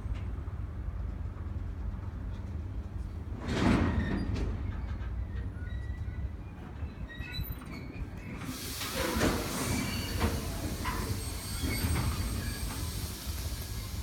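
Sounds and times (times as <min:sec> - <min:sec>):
freight wagons rumbling: 0:00.0 - 0:14.0
clanks from wheels and couplings: 0:01.1 - 0:13.7
high wheel squeals: 0:04.0 - 0:14.0
hiss: 0:08.4 - 0:14.0.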